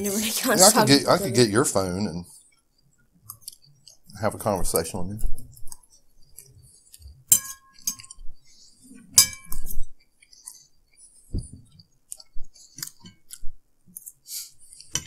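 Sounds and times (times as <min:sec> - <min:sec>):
forks clinking on plates: 0:07.3 - 0:08.2, 0:09.1 - 0:09.7
soft chewing: 0:09.9 - 0:15.0.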